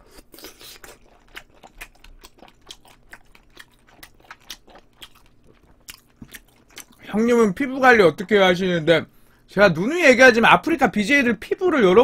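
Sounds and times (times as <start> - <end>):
person chewing with wet clicks: 0.0 - 7.1.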